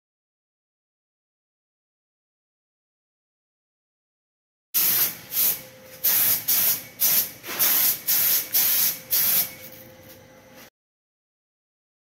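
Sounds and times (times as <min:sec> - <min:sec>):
spray gun hissing bursts: 0:04.8 - 0:09.5.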